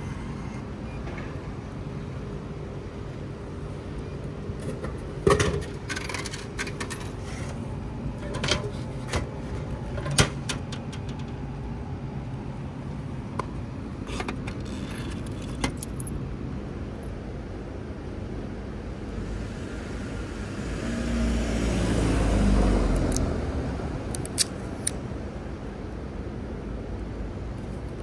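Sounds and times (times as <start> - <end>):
car passing: 19.0 - 24.1.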